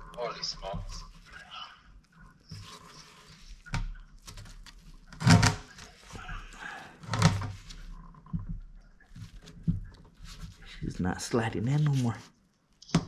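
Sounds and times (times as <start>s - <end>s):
plastic rubbing and handling: 0.0s - 13.0s.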